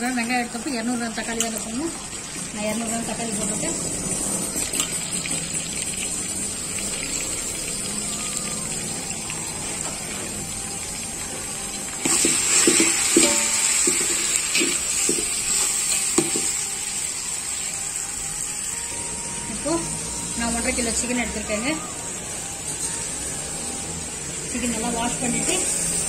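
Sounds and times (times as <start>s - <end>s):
vegetables sizzling in oil: 0.0s - 26.0s
spoon scraping and knocking a pan: 12.0s - 16.7s.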